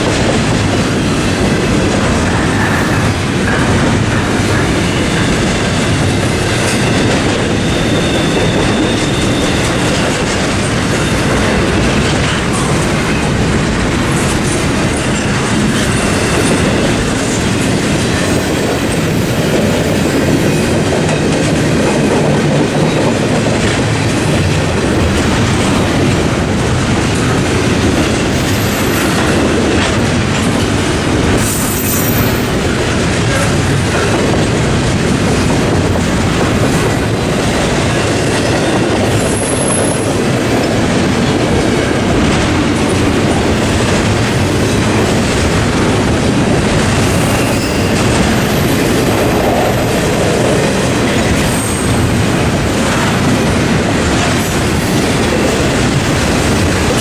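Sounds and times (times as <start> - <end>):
freight train rumbling past: 0.0 - 57.0
wheel squeals: 6.7 - 10.2.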